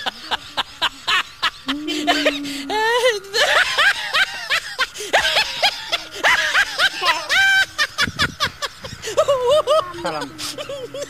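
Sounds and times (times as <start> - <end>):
girls chattering: 0.0 - 11.0
girls giggling: 0.0 - 11.0
girl holding a long note: 1.7 - 3.4.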